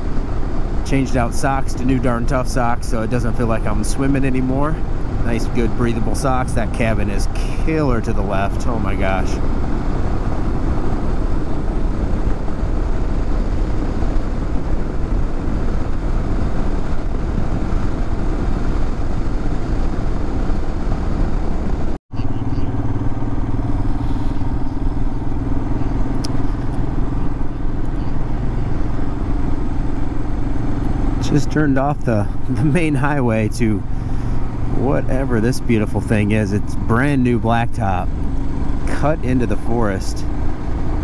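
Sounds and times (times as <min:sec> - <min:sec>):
motorcycle engine running: 0:00.0 - 0:41.0
wind and road noise: 0:00.0 - 0:41.0.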